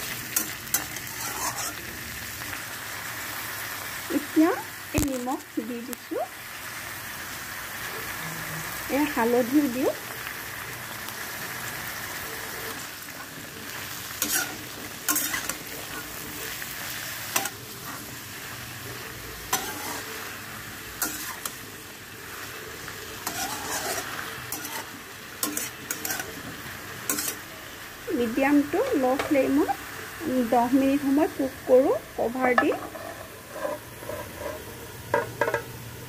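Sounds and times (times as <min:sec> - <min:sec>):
vegetables sizzling in oil: 0:00.0 - 0:36.0
metal spatula scraping a pan: 0:00.1 - 0:01.9, 0:12.5 - 0:18.6, 0:19.4 - 0:21.6, 0:23.2 - 0:27.4, 0:32.5 - 0:35.6.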